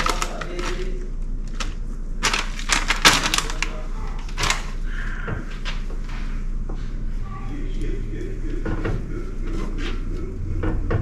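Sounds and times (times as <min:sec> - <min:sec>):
plastic bag crackling: 0:00.0 - 0:04.8.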